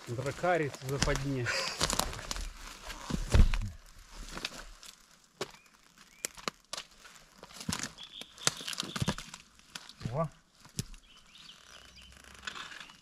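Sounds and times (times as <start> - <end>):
feet in boggy mud: 0.0 - 11.8
twigs cracking underfoot: 0.0 - 13.0
faint bird chirps: 8.0 - 9.2.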